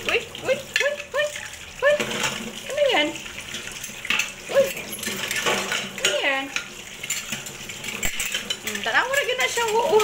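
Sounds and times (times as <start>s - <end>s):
dishes clinking in a sink: 0.0s - 10.0s
tap water splashing: 0.0s - 10.0s.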